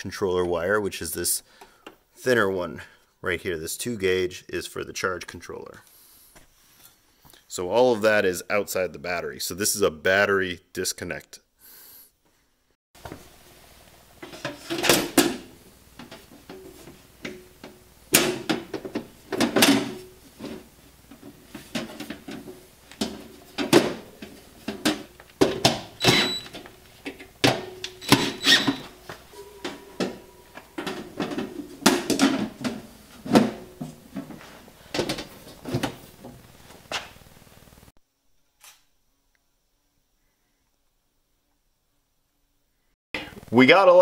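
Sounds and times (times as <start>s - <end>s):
metal covers clanking and scraping: 14.2s - 36.4s.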